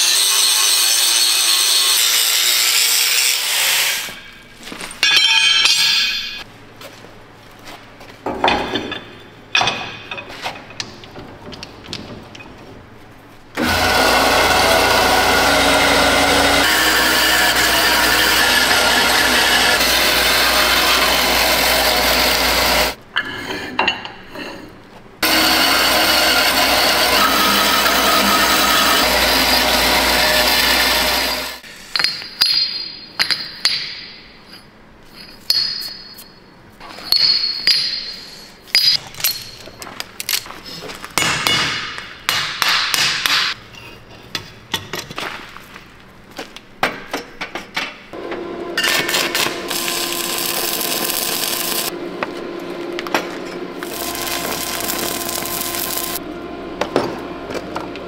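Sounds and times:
band saw cutting steel: 0:00.0 - 0:04.2, 0:13.6 - 0:23.0, 0:25.2 - 0:31.6, 0:48.4 - 0:52.0, 0:53.4 - 0:56.3
steel plates clinking and clanking: 0:05.0 - 0:06.4.

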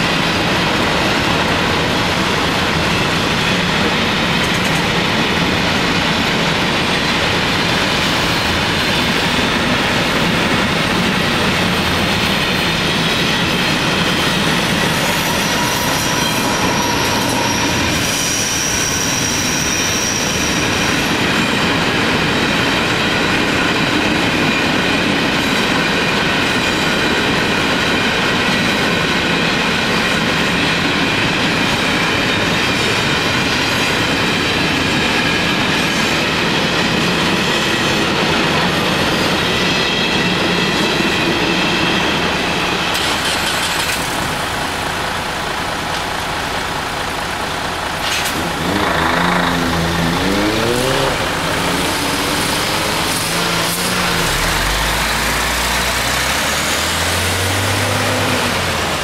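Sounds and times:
traffic engines revving: 0:00.0 - 0:25.3, 0:36.2 - 0:59.0
wheel squeal: 0:12.8 - 0:21.4, 0:48.0 - 0:58.8
lorry diesel engine passing: 0:44.5 - 0:59.0.

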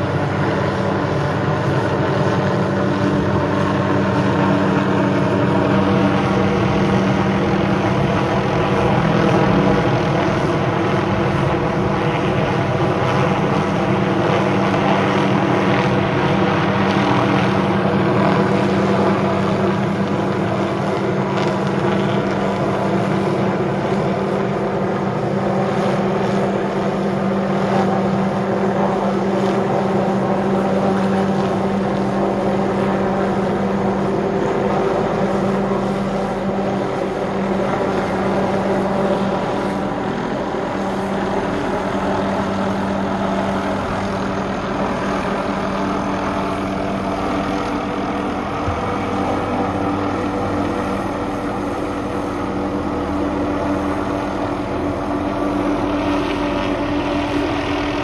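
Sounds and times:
helicopter hovering: 0:00.0 - 0:58.0.

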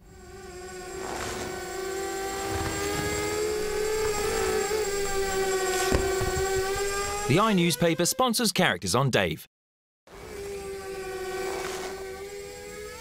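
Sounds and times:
drone propellers whining: 0:00.0 - 0:08.2, 0:10.1 - 0:13.0.

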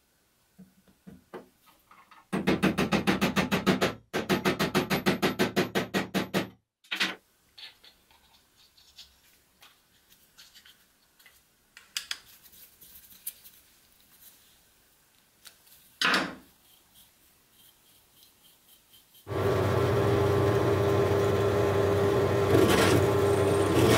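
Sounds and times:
faint metal clicks and taps: 0:10.4 - 0:12.5
motor running: 0:19.3 - 0:23.9.

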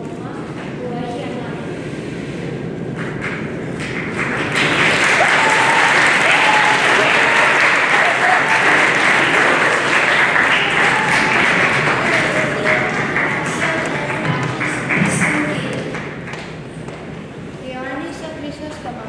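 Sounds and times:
faint voices: 0:00.0 - 0:19.0
audience applause: 0:03.0 - 0:16.7.

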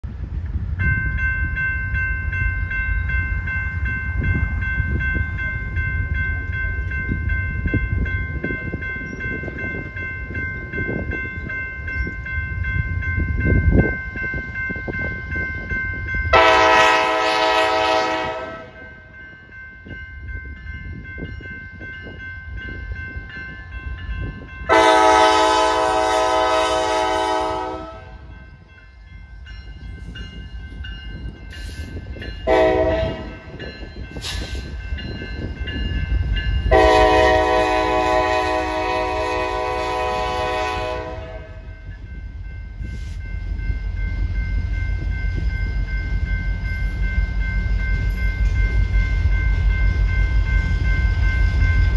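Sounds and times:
diesel locomotives rumbling: 0:00.0 - 0:51.9
train air horn blasts: 0:16.3 - 0:18.9, 0:24.7 - 0:28.3, 0:32.4 - 0:33.4, 0:36.7 - 0:41.7.

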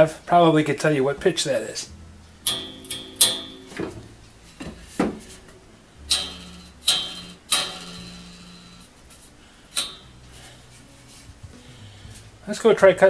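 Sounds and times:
saw blade plucked twang: 0:02.5 - 0:04.0, 0:06.1 - 0:08.9.

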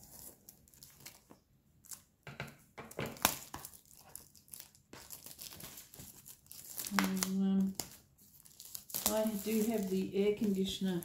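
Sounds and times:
plastic wrap crinkling: 0:00.0 - 0:02.2, 0:02.9 - 0:11.0.

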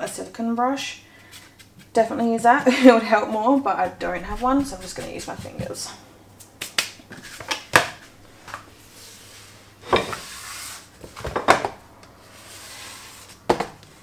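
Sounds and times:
hands brushing flour on countertop: 0:00.3 - 0:05.9, 0:08.9 - 0:10.9.

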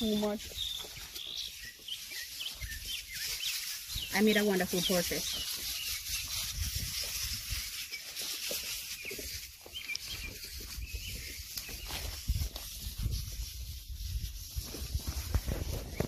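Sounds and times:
bird chirps: 0:00.0 - 0:06.3, 0:07.9 - 0:12.2
wind on microphone: 0:02.6 - 0:07.9, 0:09.0 - 0:16.0
microphone handling noise: 0:10.1 - 0:16.0.

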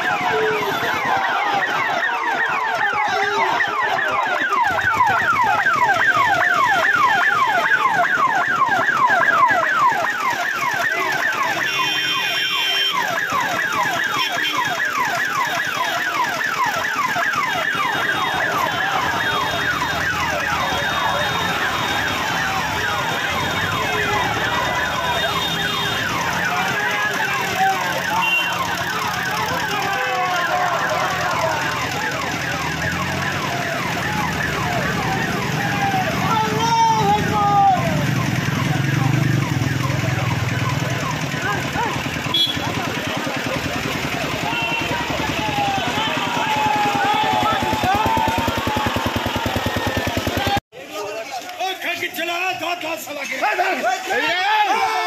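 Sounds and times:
police siren yelping: 0:00.0 - 0:50.6
horn-like tones: 0:11.5 - 0:13.4, 0:17.8 - 0:37.4, 0:42.2 - 0:43.2.

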